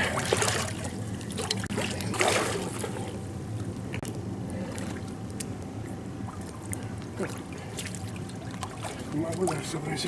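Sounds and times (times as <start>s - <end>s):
water splashing and trickling: 0.0s - 3.2s, 6.2s - 10.0s.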